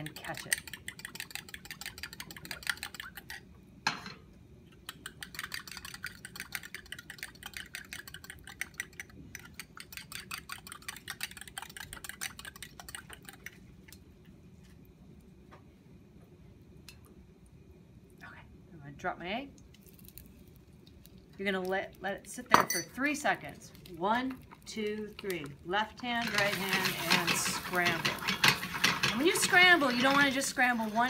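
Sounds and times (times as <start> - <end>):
butter sizzling in frying pan: 26.2 - 31.0.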